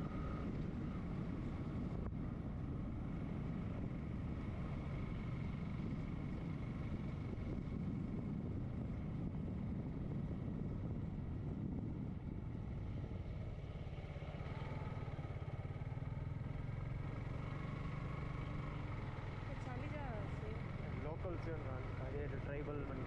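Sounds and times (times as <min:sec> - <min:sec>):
wind rushing over microphone: 0:00.0 - 0:13.7
motorcycle engine cruising: 0:00.0 - 0:23.0.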